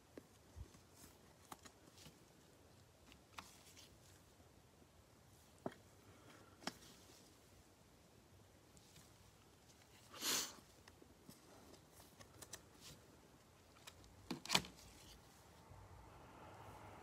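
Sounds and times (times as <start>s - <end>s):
plastic card holder rustling: 13.6s - 15.2s.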